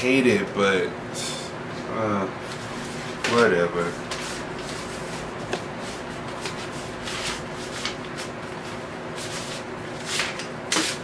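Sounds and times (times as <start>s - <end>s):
paper record sleeve rustling: 2.9s - 11.0s.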